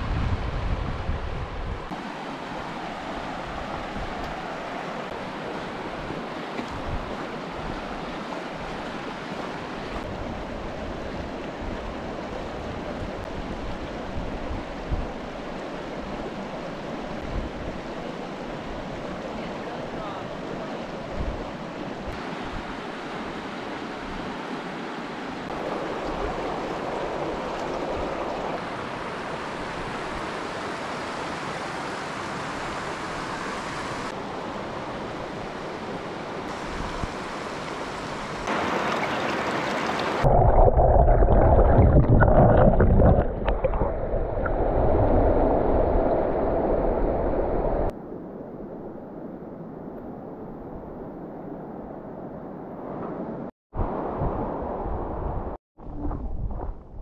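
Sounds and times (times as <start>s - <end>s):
creek running over rocks: 25.5s - 30.6s, 36.6s - 44.2s.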